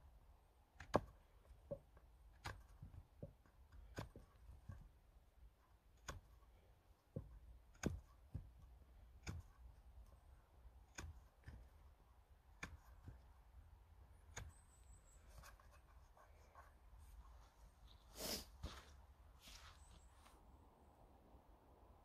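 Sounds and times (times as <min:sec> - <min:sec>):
knife shaving wood: 0:00.8 - 0:18.6
soft scraping: 0:15.1 - 0:20.4.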